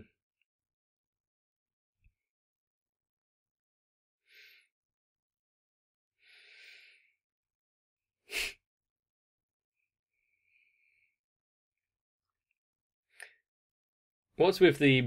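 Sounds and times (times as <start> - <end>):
sharp puff of breath: 8.3 - 8.6.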